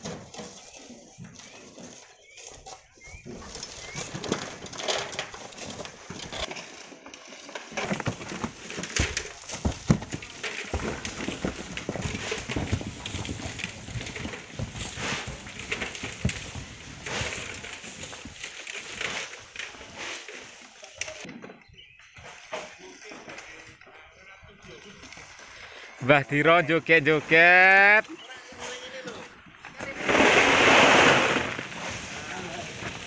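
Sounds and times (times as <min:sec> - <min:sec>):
footsteps crunching on gravel: 0:07.9 - 0:18.4.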